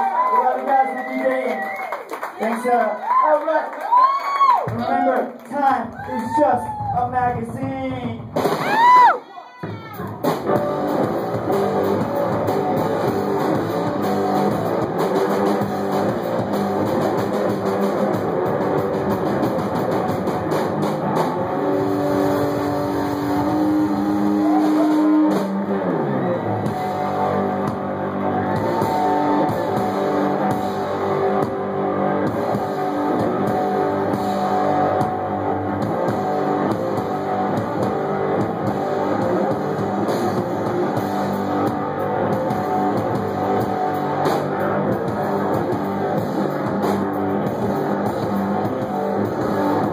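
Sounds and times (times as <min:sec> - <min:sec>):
drum kit: 0:06.0 - 0:49.9
distorted electric guitar: 0:07.1 - 0:49.9
guitar note sliding down: 0:10.5 - 0:49.9.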